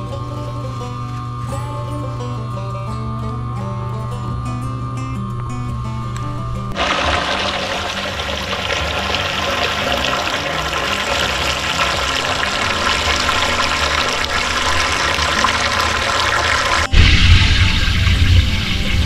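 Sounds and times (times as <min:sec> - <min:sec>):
pump slurping and gurgling liquid: 0:06.8 - 0:17.0
water rushing: 0:06.8 - 0:19.0.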